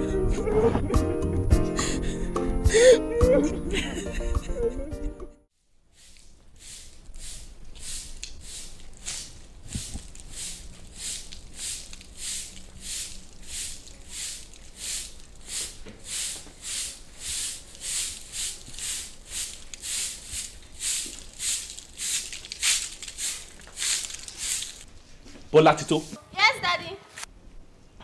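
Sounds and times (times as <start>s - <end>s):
straw broom sweeping sandy dirt: 5.8s - 24.9s.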